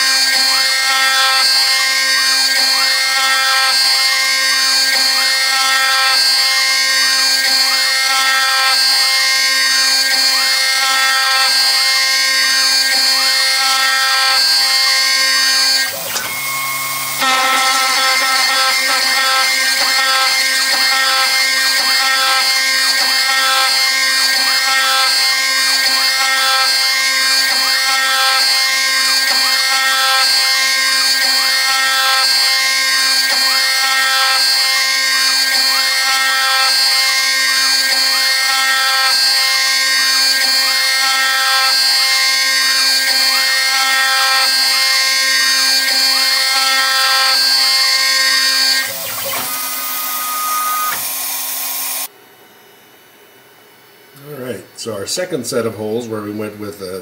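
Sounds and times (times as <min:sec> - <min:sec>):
cnc router milling metal: 0:00.0 - 0:52.1
steady spindle whine: 0:11.7 - 0:26.2, 0:44.6 - 0:52.1.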